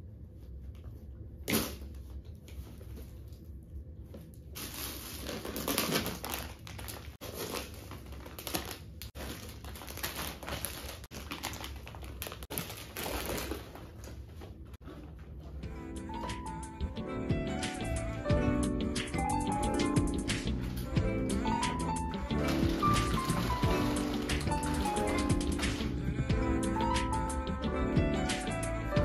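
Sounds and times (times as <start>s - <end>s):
plastic bags rustling: 4.5s - 15.6s, 20.6s - 26.1s.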